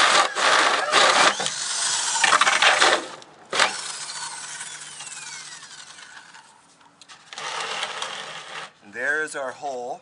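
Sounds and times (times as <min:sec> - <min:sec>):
drill grinding through plastic: 0:00.0 - 0:06.5, 0:07.3 - 0:08.7
drill motor winding down: 0:00.0 - 0:06.5.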